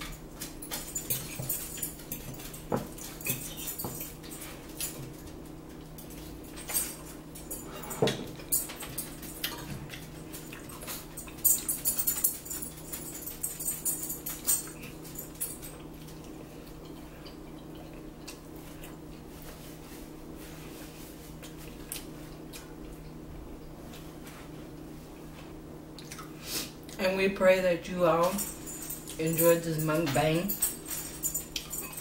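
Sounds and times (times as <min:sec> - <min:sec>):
steady low hum: 0:00.0 - 0:32.0
chewing: 0:09.0 - 0:13.5, 0:14.4 - 0:19.6, 0:21.3 - 0:23.2, 0:26.0 - 0:27.0, 0:31.4 - 0:32.0.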